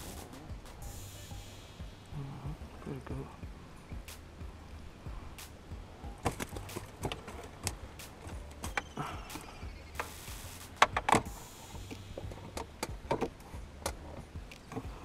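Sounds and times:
low steady hum: 0.0s - 15.0s
fishing gear knocking and clicking: 6.2s - 10.2s, 10.8s - 15.0s.

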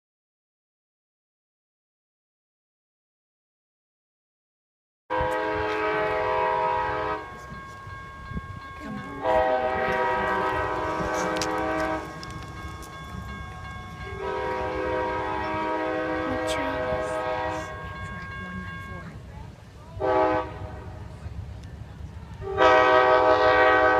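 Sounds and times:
train air horn blasts: 5.1s - 12.9s, 14.1s - 18.9s, 20.0s - 21.1s, 22.4s - 23.9s
train rumbling: 5.1s - 23.9s.

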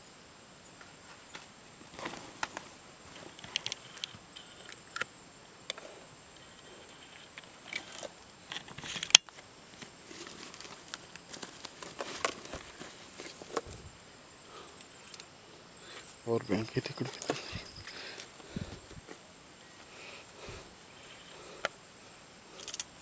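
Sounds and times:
backpack and gear rustling: 1.0s - 4.8s, 9.8s - 13.9s, 16.0s - 21.4s
faint steady high tone: 13.8s - 22.3s.

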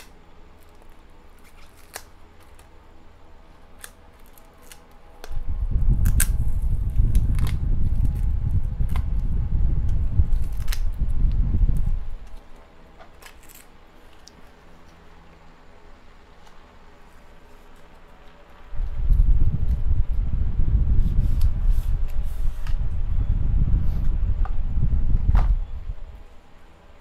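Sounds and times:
loud low rumble: 5.4s - 12.3s, 18.8s - 26.4s.

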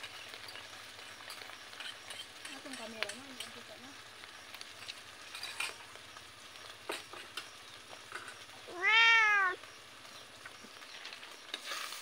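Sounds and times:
cat meowing: 8.7s - 9.6s.

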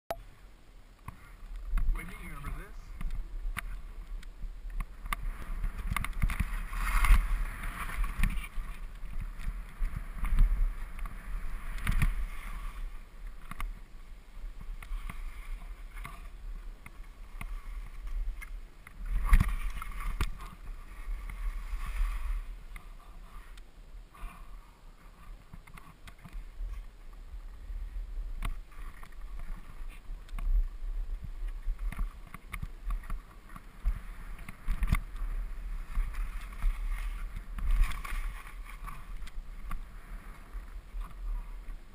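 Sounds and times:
wind rumble on microphone: 1.0s - 41.9s
skis scraping on snow: 1.2s - 23.6s, 24.2s - 41.9s.

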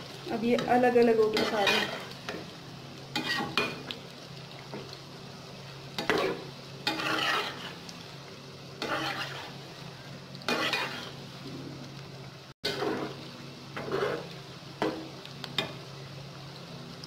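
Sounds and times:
food sizzling in hot oil: 0.0s - 17.0s
metal spatula scraping pan: 3.2s - 3.8s, 6.0s - 7.8s, 8.8s - 9.6s, 10.5s - 11.2s, 12.6s - 13.2s, 13.8s - 14.4s.

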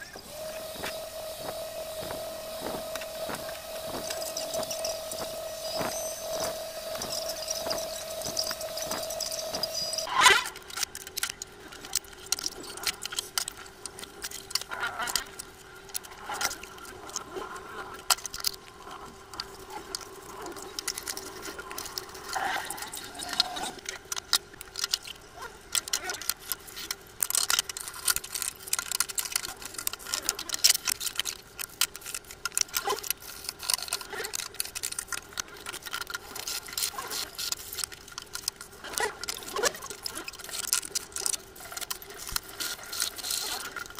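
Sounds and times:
steady hum: 0.0s - 32.6s.

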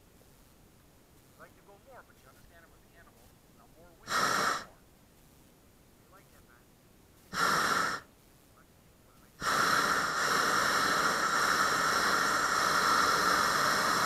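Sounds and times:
propane burner firing: 7.3s - 8.1s, 9.4s - 14.0s.

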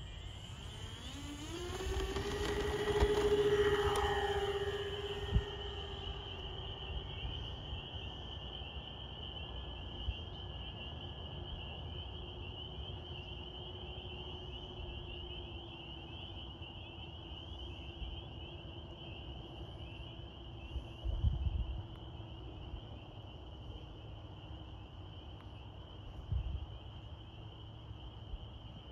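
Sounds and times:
high-pitched chirring: 0.0s - 7.9s
model plane propellers droning: 0.0s - 28.9s.

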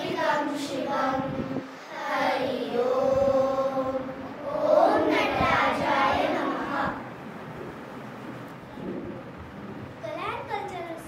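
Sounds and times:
children chanting in unison: 0.0s - 7.2s.

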